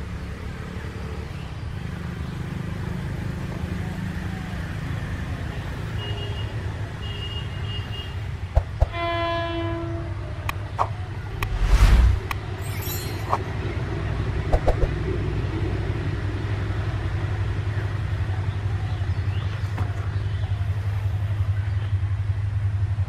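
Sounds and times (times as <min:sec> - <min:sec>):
diesel locomotive drone: 0:08.0 - 0:23.0.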